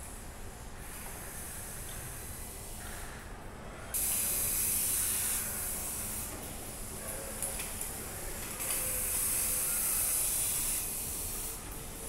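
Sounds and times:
compressed air hissing: 0:00.9 - 0:02.8, 0:04.0 - 0:06.4, 0:09.0 - 0:11.6.

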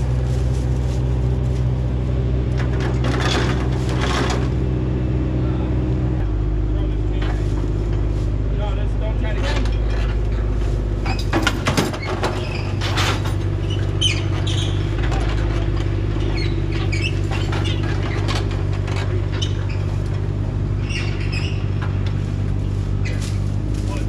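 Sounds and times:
excavator diesel engine running: 0:00.0 - 0:24.0
metal knocks and clanks: 0:02.5 - 0:04.6, 0:09.2 - 0:23.4.

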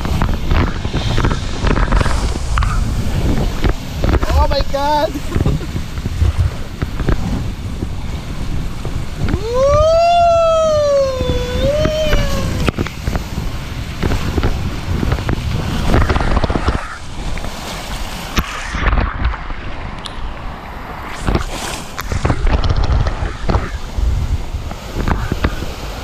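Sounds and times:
tube rushing down water slide: 0:00.0 - 0:19.9
wind noise on camera: 0:00.0 - 0:26.0
rider whooping: 0:09.3 - 0:12.7.

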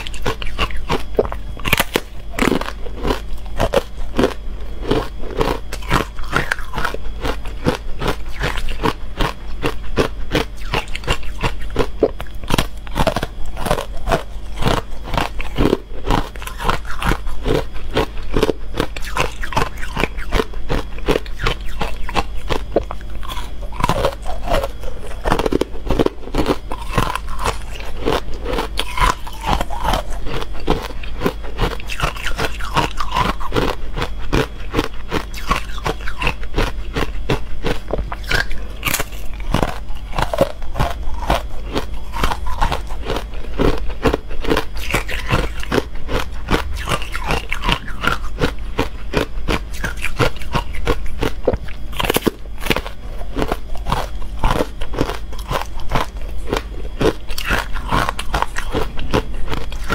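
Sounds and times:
ice crunching while chewed: 0:00.0 - 0:59.9.

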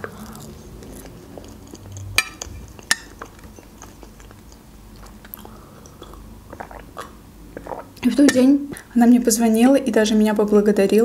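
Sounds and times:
quiet chewing: 0:00.0 - 0:08.1.

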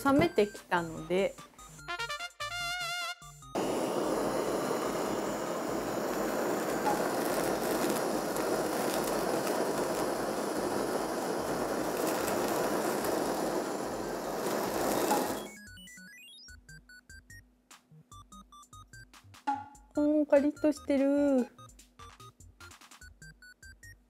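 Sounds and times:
meat sizzling in a pan: 0:03.6 - 0:15.5.

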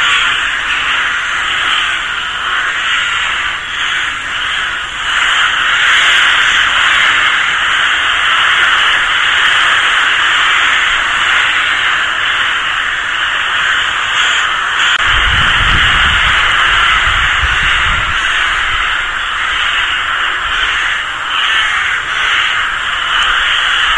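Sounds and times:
low rumble: 0:15.0 - 0:23.9
rooks cawing: 0:15.6 - 0:23.9.

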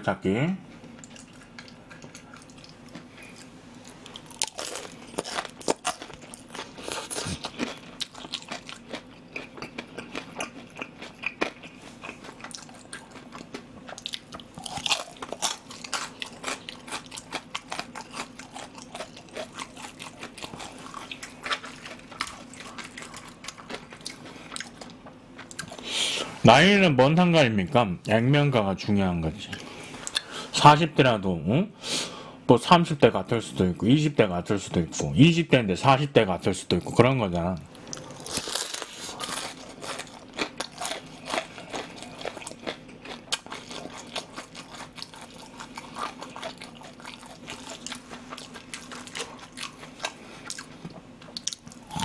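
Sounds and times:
crunching and chewing fried food: 0:00.9 - 0:26.3, 0:37.6 - 0:52.0.

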